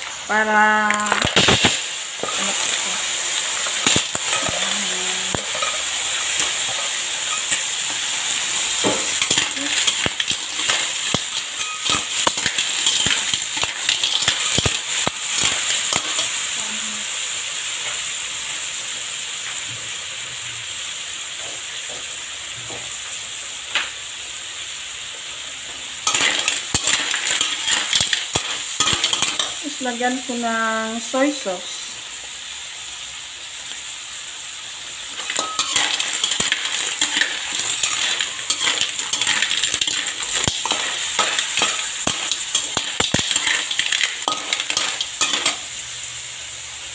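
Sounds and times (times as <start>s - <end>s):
clams sizzling in a wok: 0.0s - 46.9s
metal spatula scraping a pan: 8.7s - 16.3s, 35.1s - 45.7s.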